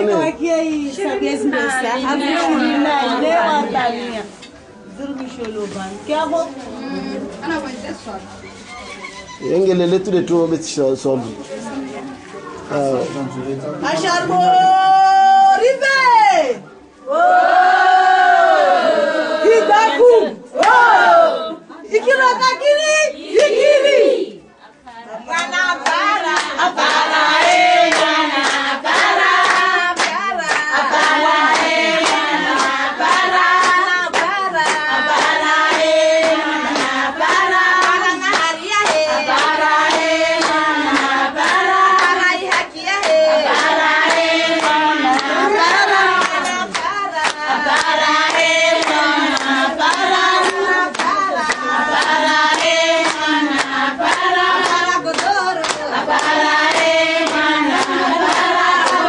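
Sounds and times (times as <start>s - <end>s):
women singing together: 0.0s - 8.2s, 13.8s - 59.0s
rhythmic hand-clapping: 20.6s - 21.0s, 23.3s - 23.7s, 25.3s - 59.0s.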